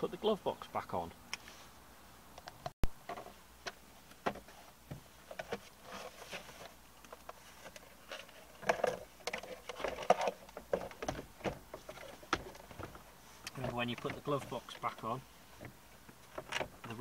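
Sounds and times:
rustling: 3.0s - 17.0s
plastic knocks clicks and scrapes: 4.2s - 15.0s.

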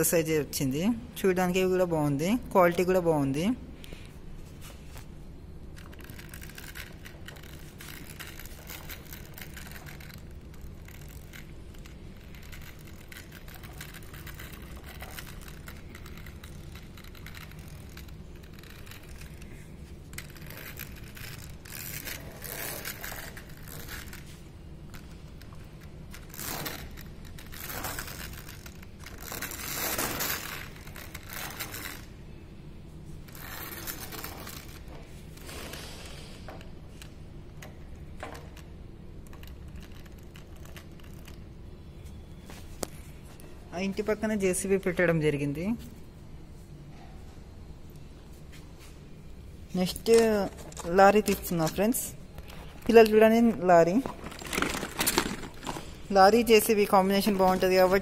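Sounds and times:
low background hum: 0.0s - 58.0s
plastic toy scraping and rattling: 5.7s - 32.1s, 33.3s - 37.8s, 39.3s - 41.5s, 49.9s - 58.0s.

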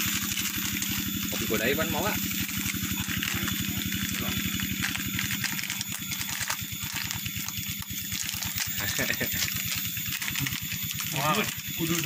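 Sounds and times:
low pulsing hum: 0.0s - 12.0s
objects clicking and clinking: 2.4s - 12.0s.

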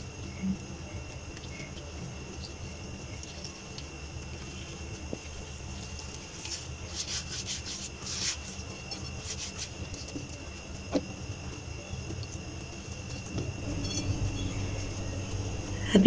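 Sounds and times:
faint high whine: 0.0s - 16.0s
steady low hum: 0.0s - 16.0s
hands rubbing dough: 2.4s - 10.4s.

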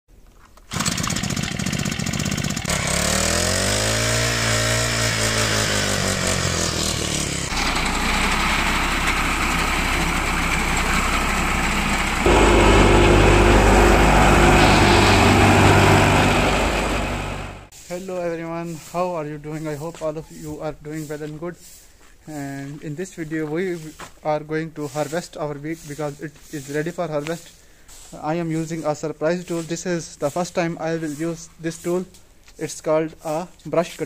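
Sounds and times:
brush cutter engine revving: 0.7s - 17.7s
reaper running: 0.7s - 17.7s
wheat thresher humming: 0.7s - 17.7s.

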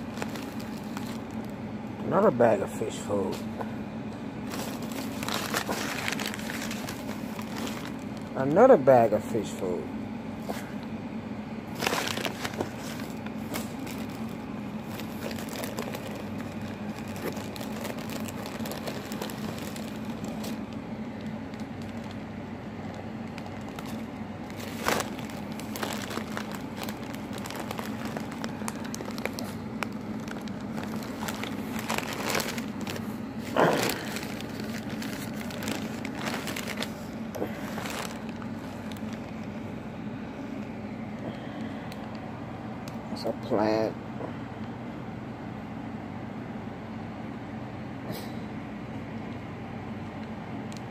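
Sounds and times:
paper and plastic bags rustling: 0.0s - 1.6s, 4.4s - 8.7s, 11.7s - 39.8s
steady low hum: 0.0s - 50.9s.

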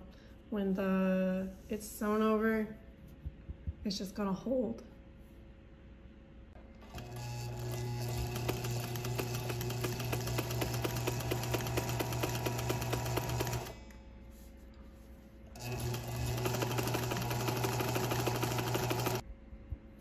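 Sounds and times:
sewing machine stitching: 6.8s - 13.8s, 15.6s - 19.2s.

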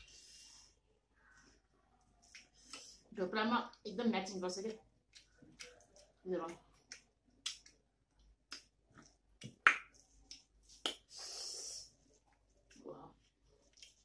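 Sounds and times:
breath hiss: 11.0s - 12.0s.

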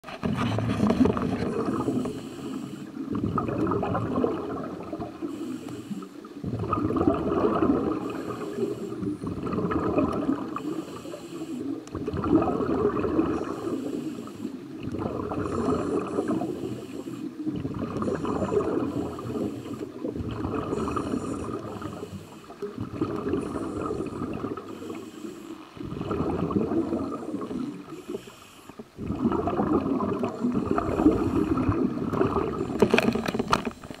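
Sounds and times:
exhaled bubbles rumbling: 0.0s - 34.0s
regulator inhalation hiss: 1.8s - 3.0s, 5.2s - 6.2s, 8.0s - 9.2s, 10.6s - 11.8s, 13.4s - 14.6s, 15.6s - 17.4s, 20.8s - 22.6s, 24.7s - 25.8s, 27.3s - 28.8s.

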